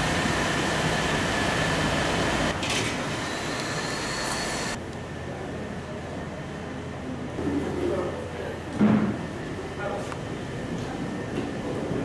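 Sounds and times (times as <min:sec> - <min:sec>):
mechanical whirring with whine: 0:00.0 - 0:04.8.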